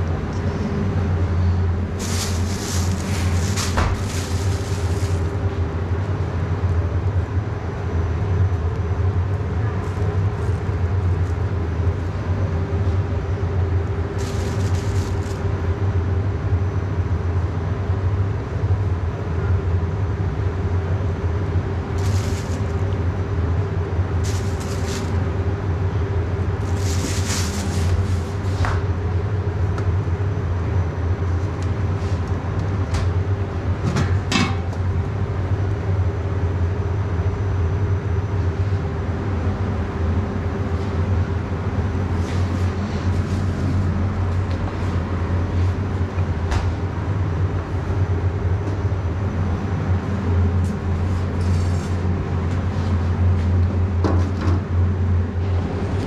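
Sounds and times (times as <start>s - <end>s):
kitchen equipment humming: 0.6s - 6.9s, 11.6s - 16.4s, 21.3s - 30.2s
food scraping and hissing: 2.0s - 5.4s, 14.2s - 15.5s, 22.0s - 22.8s, 24.2s - 25.3s, 26.6s - 28.8s.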